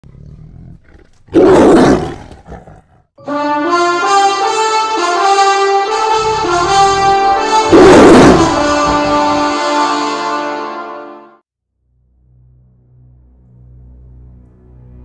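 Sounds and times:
tiger roar: 0.0 - 3.1, 6.0 - 9.3
slow brass fanfare: 3.2 - 11.4.

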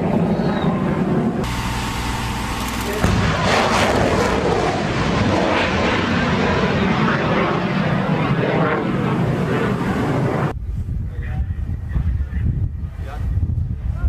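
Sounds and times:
rocket motor crackling rush: 1.4 - 7.6.

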